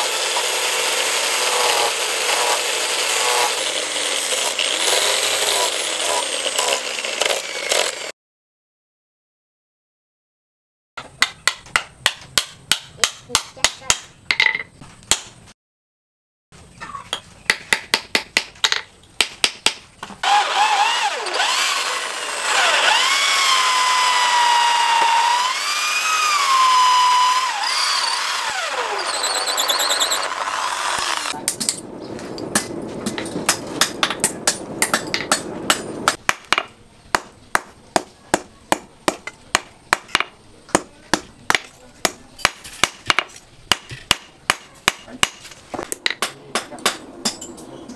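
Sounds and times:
electric drill boring into wood: 0.0s - 8.1s, 20.2s - 31.4s
hammer striking metal on anvil: 32.5s - 45.4s, 46.0s - 47.6s.

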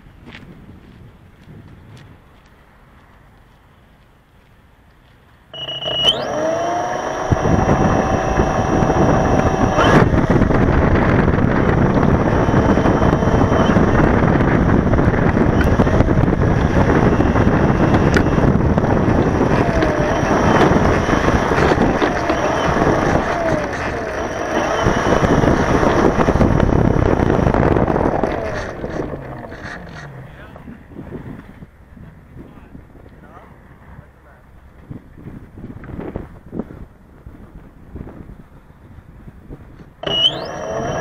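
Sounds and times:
wind on microphone: 0.0s - 3.4s, 5.6s - 41.0s
propeller wash: 5.6s - 31.0s
electric motor whine: 5.6s - 31.6s, 40.0s - 41.0s.

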